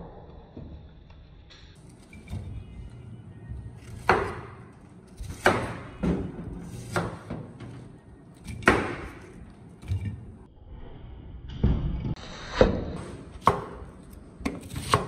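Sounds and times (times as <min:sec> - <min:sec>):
knife chopping on wooden board: 0:03.8 - 0:04.6, 0:05.2 - 0:07.5, 0:08.4 - 0:09.4, 0:13.4 - 0:15.0.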